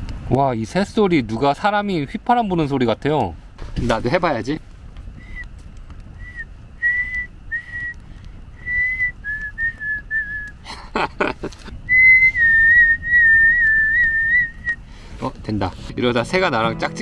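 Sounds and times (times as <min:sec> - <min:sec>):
person whistling birdsong: 0:05.2 - 0:05.5, 0:06.2 - 0:08.0, 0:08.6 - 0:10.6, 0:11.8 - 0:14.8.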